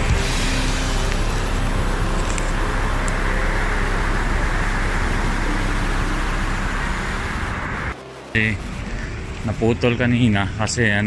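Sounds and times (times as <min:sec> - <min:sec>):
highway traffic roar: 0:00.0 - 0:11.0.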